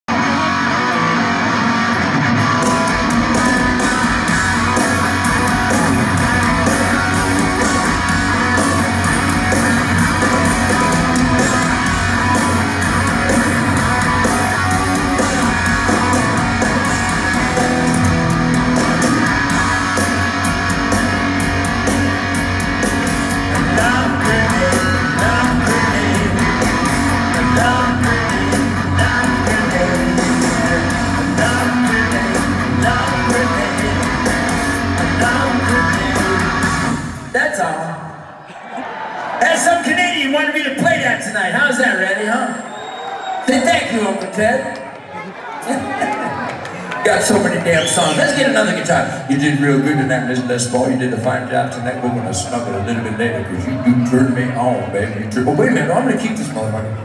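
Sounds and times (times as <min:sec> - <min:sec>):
bass guitar: 0:00.0 - 0:37.4
electric guitar: 0:00.1 - 0:37.4
drums: 0:00.1 - 0:38.1, 0:38.7 - 0:45.0, 0:45.6 - 0:57.0.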